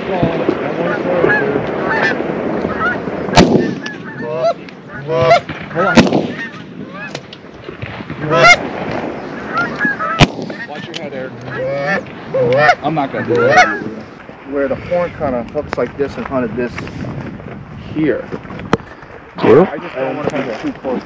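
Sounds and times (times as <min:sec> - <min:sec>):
geese honking: 0:00.0 - 0:14.2.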